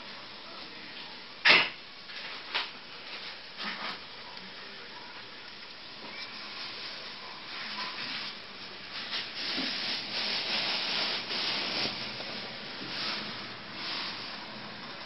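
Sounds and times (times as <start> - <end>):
rough rubbing scraping: 7.6 - 14.5.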